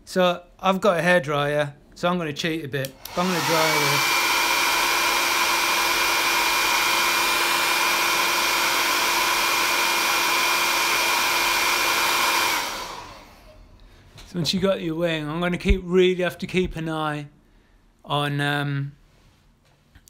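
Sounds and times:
hair dryer blowing: 2.8 - 13.7.

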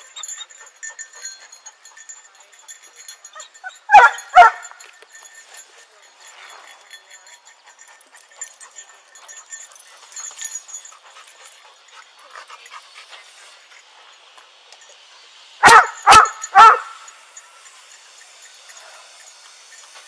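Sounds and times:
dog barking: 3.9 - 4.6, 15.6 - 17.0.

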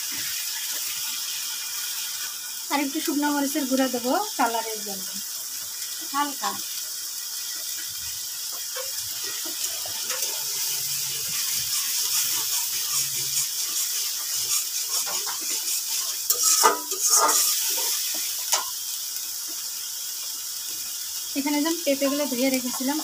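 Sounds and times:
paste sizzling in a wok: 0.0 - 23.0
metal spatula scraping a pan: 8.5 - 18.8, 21.8 - 23.0.

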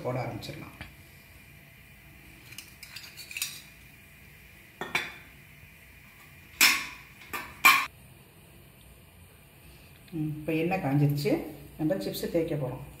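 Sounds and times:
steel tumblers clinking: 2.4 - 3.8.

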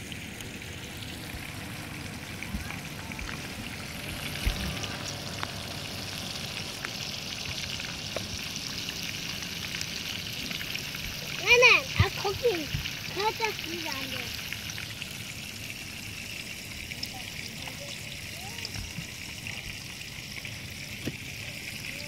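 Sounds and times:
fish sizzling in oil: 0.0 - 22.0.

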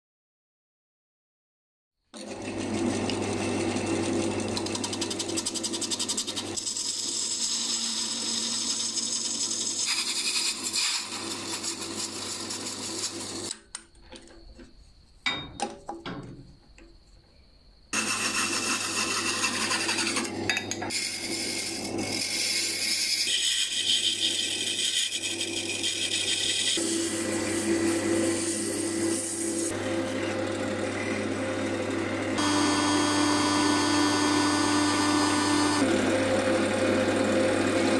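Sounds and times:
chisel scraping spinning wood: 2.2 - 13.6, 18.0 - 31.5
lathe motor humming: 21.3 - 37.9.

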